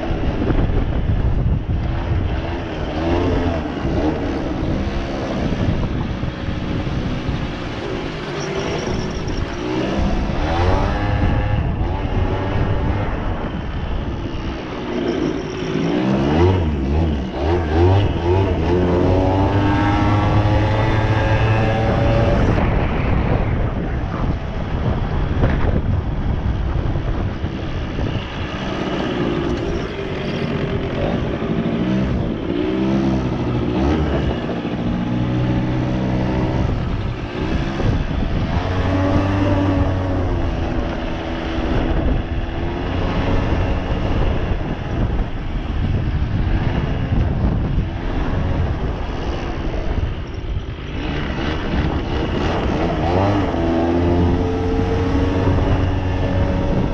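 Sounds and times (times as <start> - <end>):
two-stroke engine revving: 14.5 - 22.7, 50.8 - 56.9.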